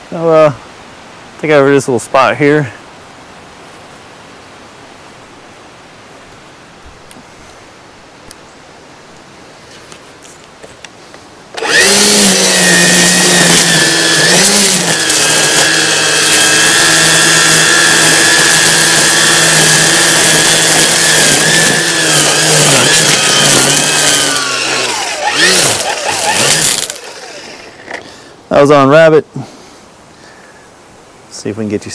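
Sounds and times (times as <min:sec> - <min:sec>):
string trimmer spinning: 0:11.5 - 0:28.2.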